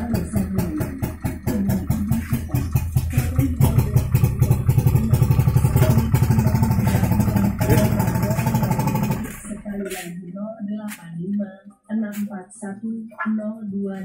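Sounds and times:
loud engine exhaust: 0.0 - 10.1.

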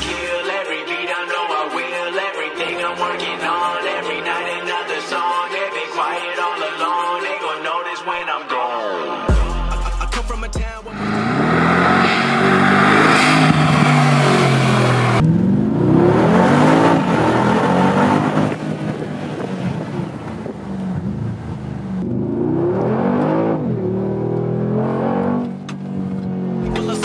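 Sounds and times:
car engine revving: 9.7 - 27.0.

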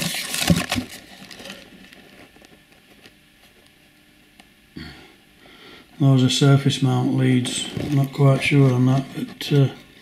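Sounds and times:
plastic bags crinkling: 0.0 - 3.0, 7.6 - 9.7.

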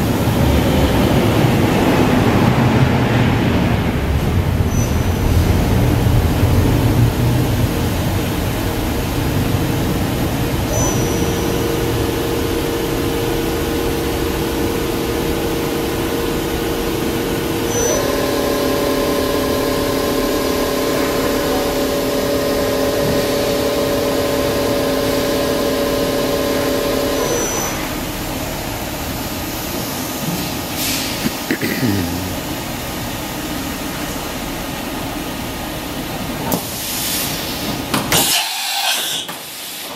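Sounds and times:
spindle multi-tone hum: 4.4 - 30.8
machine hiss: 36.6 - 39.9.

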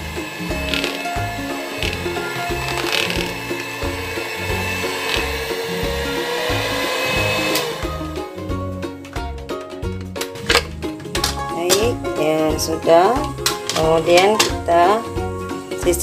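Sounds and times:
electric mixer motor running: 0.0 - 8.7
background music with beat: 0.0 - 16.0.

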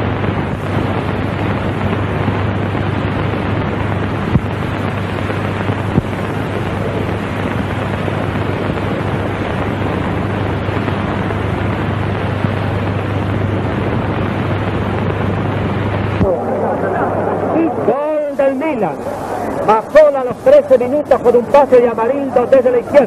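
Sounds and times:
low constant hum: 0.0 - 23.0
recording hiss: 0.0 - 23.0
stadium crowd roaring: 16.2 - 20.7.

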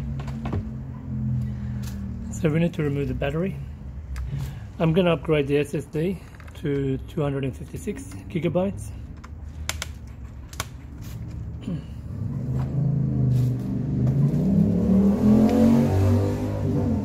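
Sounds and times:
motor drone rising in pitch: 12.6 - 17.0.

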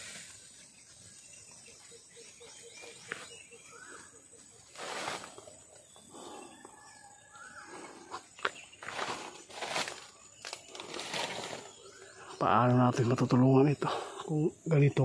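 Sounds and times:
rustling: 0.0 - 1.2, 3.0 - 6.3, 8.1 - 12.0.

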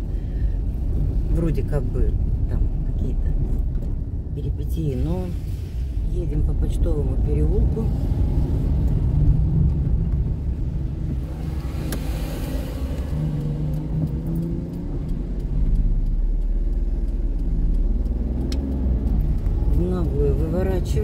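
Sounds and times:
car engine and road rumble: 0.0 - 21.0.

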